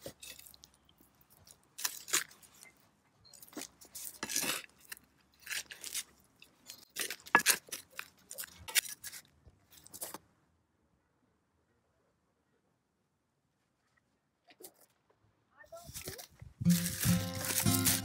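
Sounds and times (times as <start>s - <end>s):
trowel scraping potting mix: 0.0s - 2.8s, 3.4s - 10.2s, 15.8s - 18.0s.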